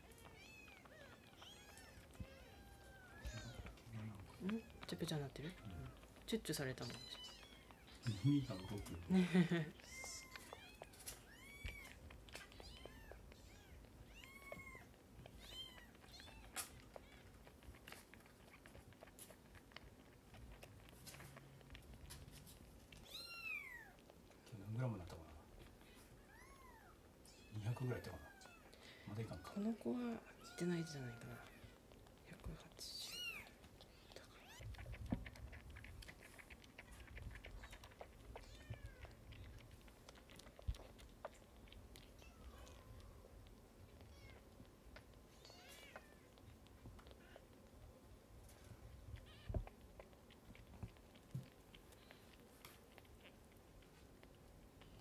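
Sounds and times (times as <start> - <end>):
kitten mewing: 0.0 - 4.9, 33.0 - 39.6
kitten sucking on bottle: 0.0 - 55.0.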